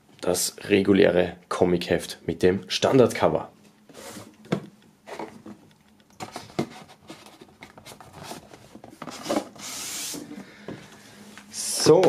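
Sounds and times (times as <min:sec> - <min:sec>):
hissing rub: 0:09.6 - 0:10.4.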